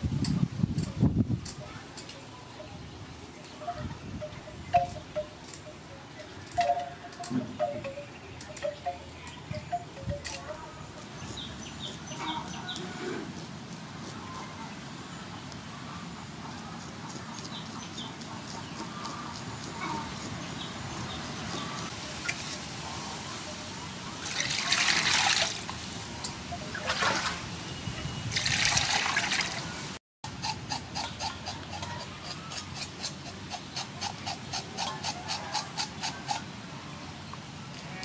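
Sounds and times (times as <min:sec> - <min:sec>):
knife scraping fish scales: 0:16.5 - 0:20.4, 0:30.4 - 0:36.4
water splashing in metal basin: 0:24.3 - 0:25.7, 0:28.3 - 0:29.6.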